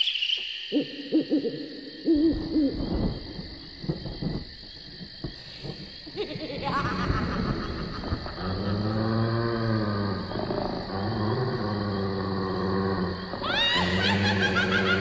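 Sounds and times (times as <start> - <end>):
owl-like hooting: 0.7 - 2.8
rising wail: 13.3 - 15.0.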